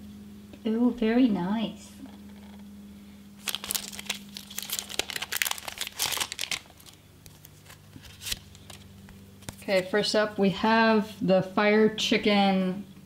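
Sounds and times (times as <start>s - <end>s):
foil wrapper crinkling and tearing: 3.4s - 9.7s.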